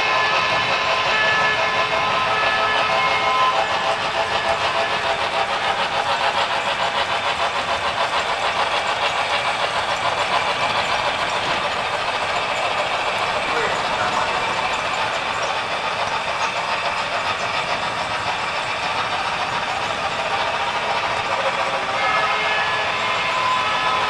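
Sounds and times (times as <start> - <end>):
multi-tone steam whistle: 0.0 - 7.7, 20.3 - 24.0
steam exhaust chuffing: 0.0 - 24.0.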